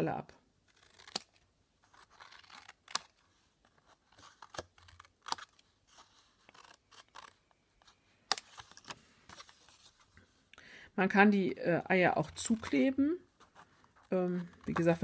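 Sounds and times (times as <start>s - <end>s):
scissors snipping cardstock: 0.7s - 3.2s.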